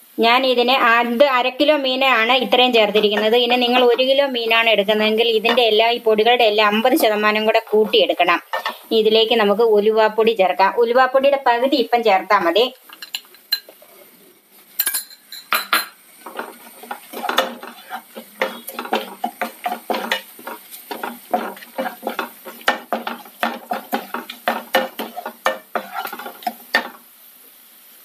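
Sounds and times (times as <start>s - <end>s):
wooden spatula scraping frying pan: 7.8s - 8.9s, 16.2s - 27.0s.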